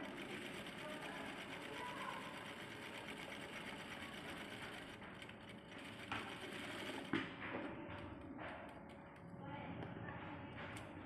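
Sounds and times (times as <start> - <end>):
sewing machine stitching: 0.0 - 7.2.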